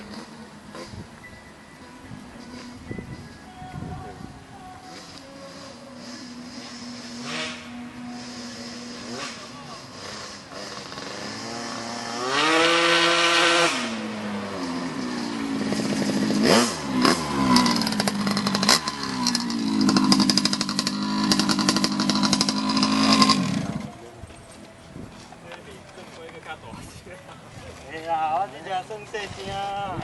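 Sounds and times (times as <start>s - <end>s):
scooter engine revving: 4.9s - 24.0s.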